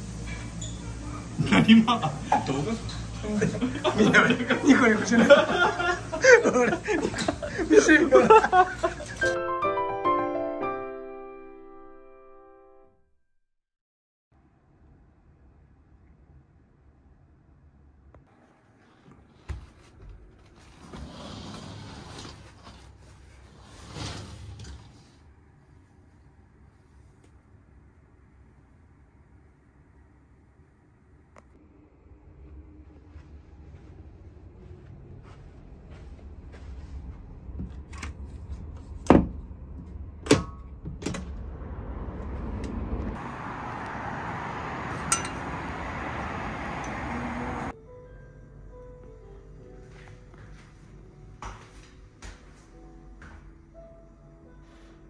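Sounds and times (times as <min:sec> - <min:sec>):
steady rushing hiss: 0:00.0 - 0:09.3
curtain fabric swishing on rail: 0:18.6 - 0:25.3.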